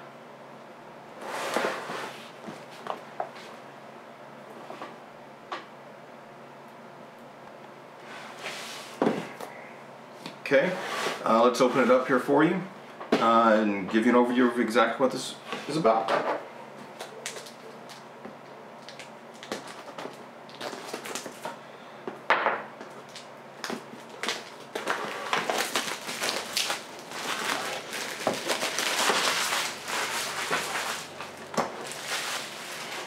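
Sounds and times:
plastic wrap crinkling and tearing: 0:16.9 - 0:18.1, 0:18.8 - 0:21.6, 0:23.0 - 0:33.0.

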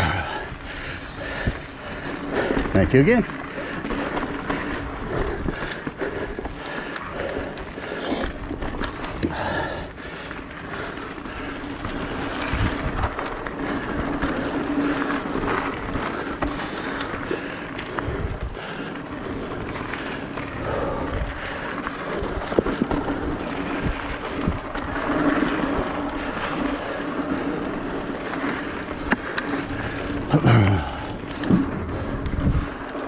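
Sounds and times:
bike rattling over bumps: 0:00.0 - 0:33.0
bike tyres rolling on dirt: 0:00.0 - 0:33.0
wind on microphone: 0:31.8 - 0:32.8.

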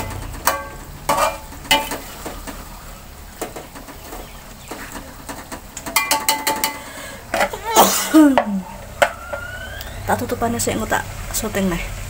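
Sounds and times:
metal spatula scraping a wok: 0:00.0 - 0:02.4
low sizzle: 0:00.0 - 0:12.0.

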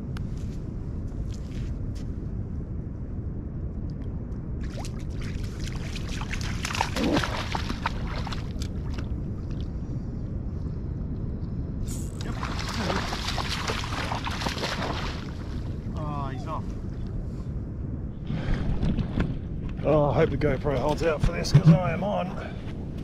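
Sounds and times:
steady low rumble: 0:00.0 - 0:23.0
dog splashing through water: 0:05.5 - 0:08.7, 0:12.2 - 0:15.3.

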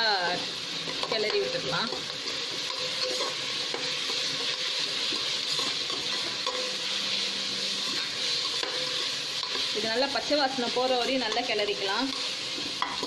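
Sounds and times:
onions sizzling in hot oil: 0:00.0 - 0:13.0
spatula scraping pan: 0:00.9 - 0:10.3.

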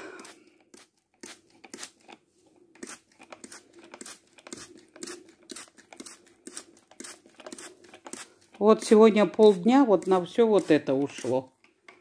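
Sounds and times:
spray bottle squirting water: 0:02.8 - 0:11.3.

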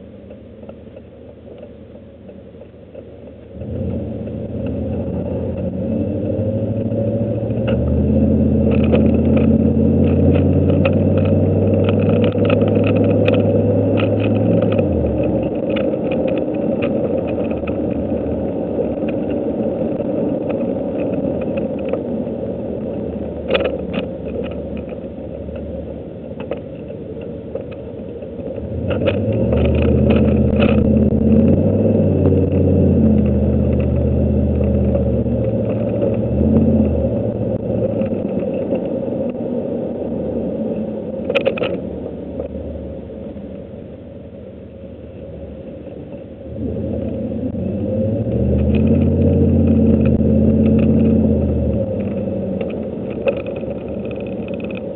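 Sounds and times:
truck engine accelerating: 0:03.4 - 0:26.6, 0:27.6 - 0:43.6, 0:46.4 - 0:54.9
light clicks and rattles: 0:06.8 - 0:22.2, 0:22.8 - 0:39.5, 0:41.2 - 0:42.6, 0:48.0 - 0:54.9.

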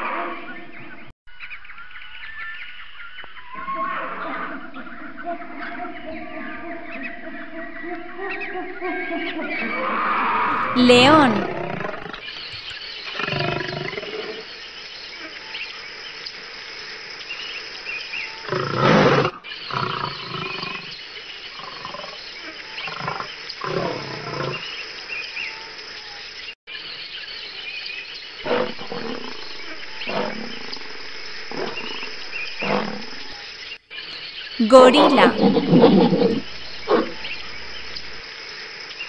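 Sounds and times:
lion roaring: 0:31.5 - 0:33.3.

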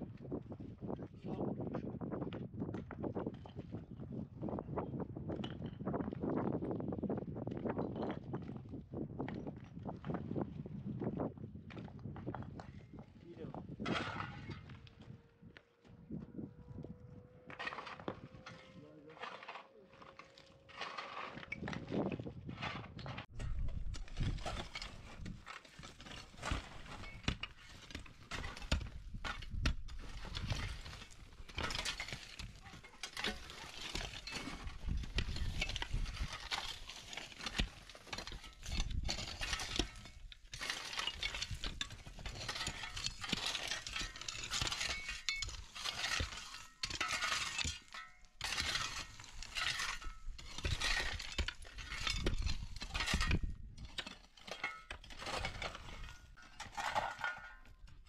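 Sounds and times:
shovels scraping through gravel: 0:17.5 - 0:57.6
steel picks striking rock: 0:23.4 - 0:58.0.

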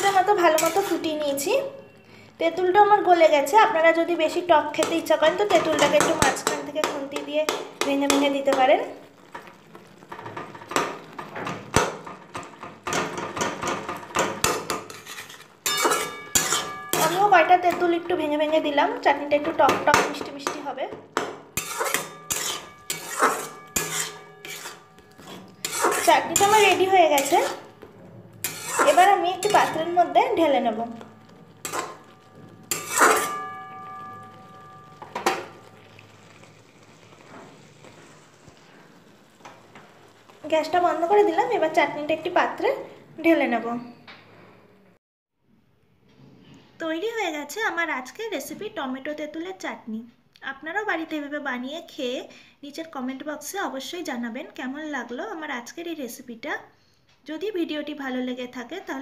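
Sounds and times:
metal spatula scraping metal pan: 0:00.0 - 0:02.0, 0:04.3 - 0:42.6
thick chutney simmering: 0:00.0 - 0:43.6
metal spatula knocking on pan: 0:04.8 - 0:08.7, 0:10.2 - 0:15.0, 0:19.4 - 0:24.7, 0:31.0 - 0:35.7
pan ringing: 0:31.0 - 0:35.8.

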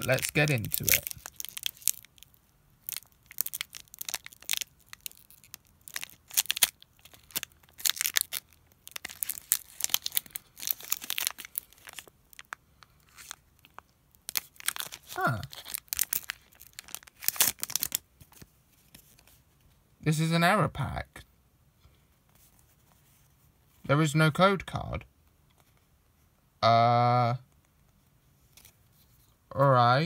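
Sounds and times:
foil wrapper crinkling and tearing: 0:00.0 - 0:18.5.

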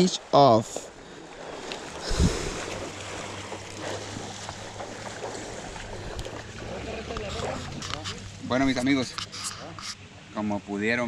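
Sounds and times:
river water moving: 0:00.0 - 0:11.0
wind on microphone: 0:01.9 - 0:03.4.

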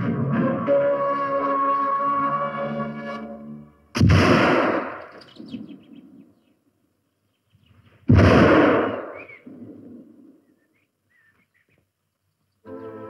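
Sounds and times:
pistol shots with echo: 0:04.0 - 0:05.5, 0:08.1 - 0:09.8.

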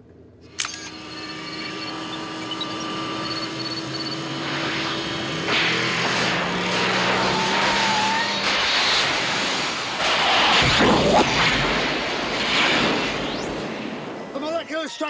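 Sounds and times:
car engine accelerating: 0:00.7 - 0:14.2
rushing crackling noise: 0:04.2 - 0:14.8.

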